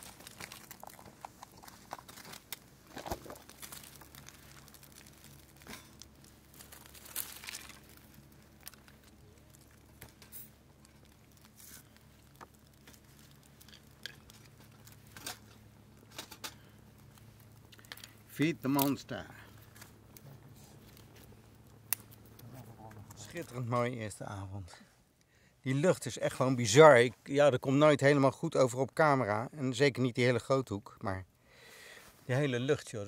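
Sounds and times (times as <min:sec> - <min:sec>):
twigs snapping: 0:00.0 - 0:23.6
fire crackling: 0:00.0 - 0:28.1
faint low hum: 0:00.0 - 0:33.0.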